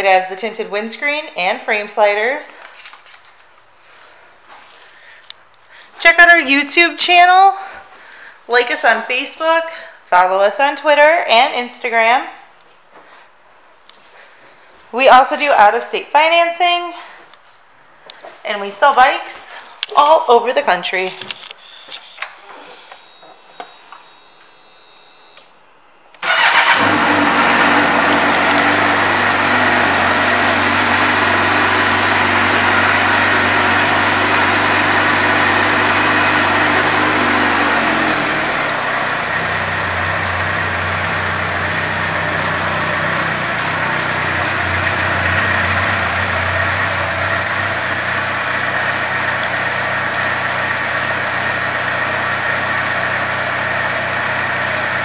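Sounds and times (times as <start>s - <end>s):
motorcycle engine starting and idling: 26.2s - 55.0s.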